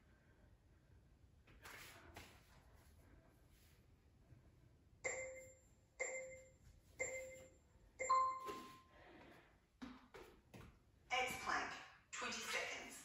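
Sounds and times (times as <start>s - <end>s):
timer chime tones: 5.1s - 8.8s.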